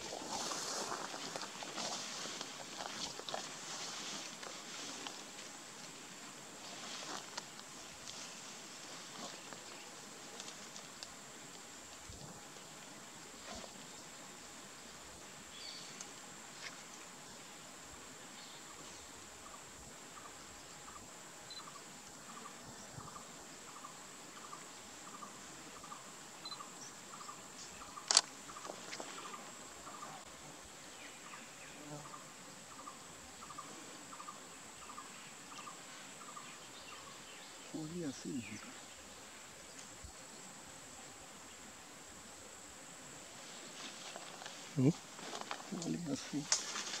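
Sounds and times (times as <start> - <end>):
short repeating insect call: 0.0 - 47.0
high-pitched insect drone: 18.4 - 30.2.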